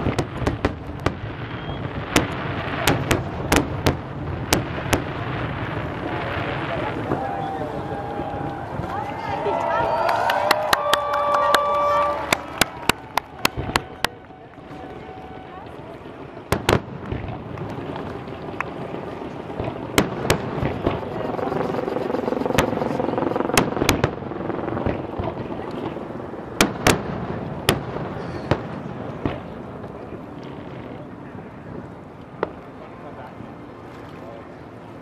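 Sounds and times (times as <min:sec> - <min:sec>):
fireworks bangs: 0:00.0 - 0:32.8
background rumble: 0:11.7 - 0:35.0.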